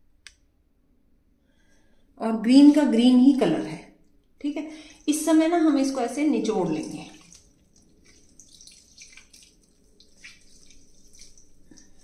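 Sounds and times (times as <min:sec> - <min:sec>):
greens squishing: 0:06.6 - 0:12.0
water dripping into metal pan: 0:06.7 - 0:12.0.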